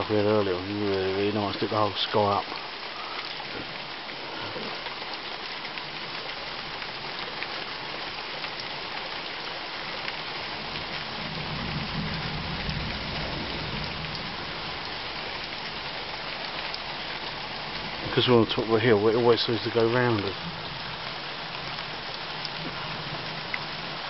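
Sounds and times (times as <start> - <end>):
heavy rain: 0.0 - 24.0
raindrops ticking on surfaces: 0.0 - 24.0
low thunder rumble: 10.6 - 14.8.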